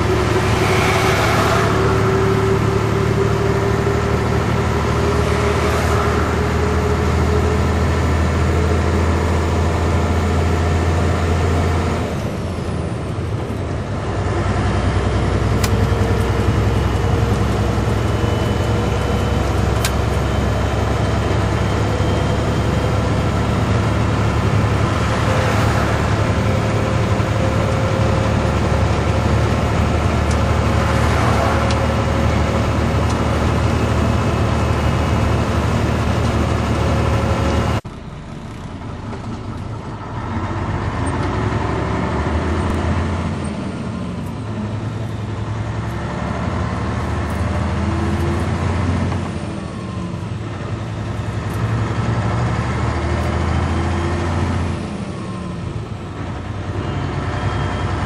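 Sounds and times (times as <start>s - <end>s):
truck diesel engine droning: 0.0s - 58.0s.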